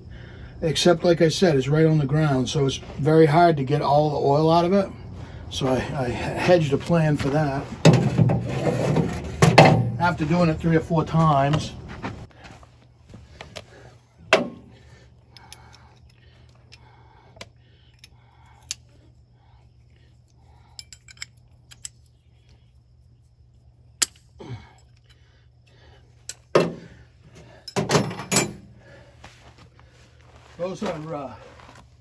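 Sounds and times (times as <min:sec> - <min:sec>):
metal wrench clinks: 0:20.7 - 0:22.1.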